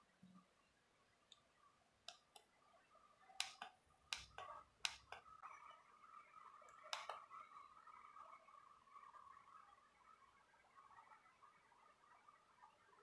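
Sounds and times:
keypad buttons clicking: 0:03.4 - 0:05.2.

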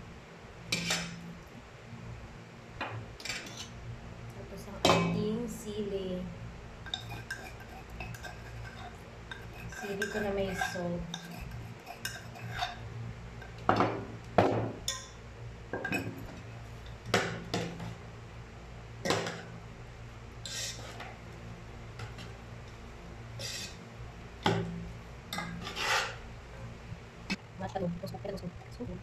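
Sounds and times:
faint low hum: 0:00.0 - 0:29.0
metal spoon scraping a pot: 0:06.9 - 0:12.8, 0:20.4 - 0:21.0, 0:25.3 - 0:26.2.

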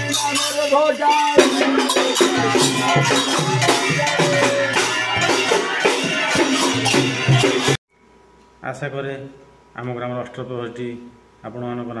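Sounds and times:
drums: 0:00.0 - 0:07.8
jingling hand cymbals: 0:00.0 - 0:07.8
group singing: 0:01.1 - 0:07.8.

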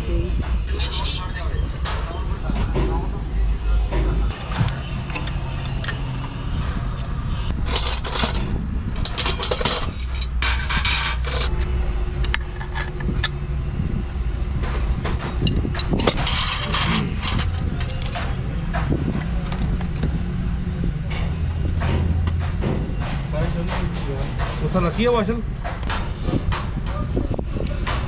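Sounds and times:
low engine rumble: 0:00.0 - 0:28.0.

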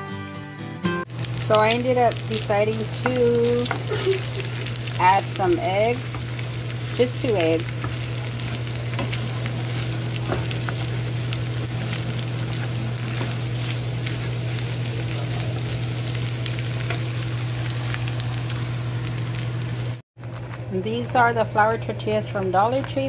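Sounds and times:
food sizzling in a frying pan: 0:01.1 - 0:20.0
steady low hum: 0:01.1 - 0:20.0
wooden spoon stirring: 0:01.4 - 0:15.2.

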